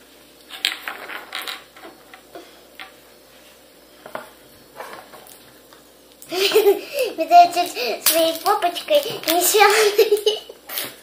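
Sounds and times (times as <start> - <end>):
plastic toys clicking and scraping: 7.5 - 10.3.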